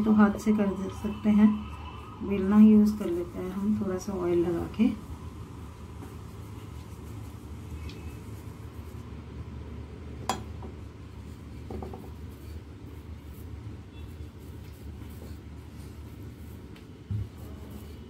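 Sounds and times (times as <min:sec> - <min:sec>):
rolling pin rolling dough: 0:10.5 - 0:18.0.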